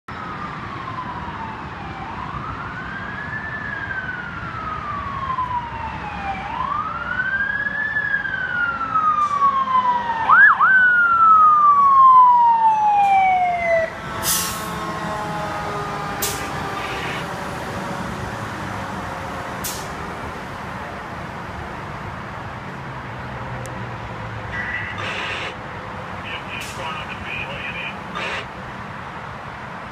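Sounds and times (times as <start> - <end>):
short sharp hisses: 25.0 - 25.6.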